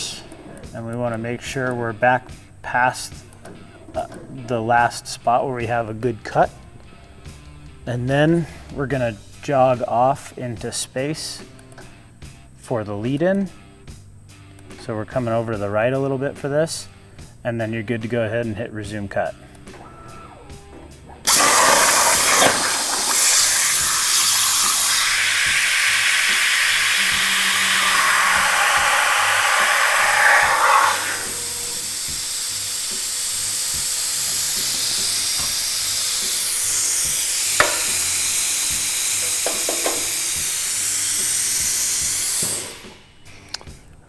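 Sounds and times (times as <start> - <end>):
plasma cutter arc hissing: 21.3 - 43.0
torch air hissing: 21.3 - 43.2.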